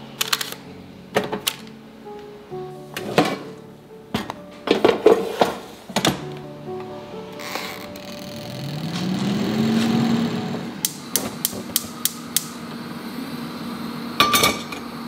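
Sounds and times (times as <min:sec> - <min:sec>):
gas hob igniter clicking: 0:10.8 - 0:12.6.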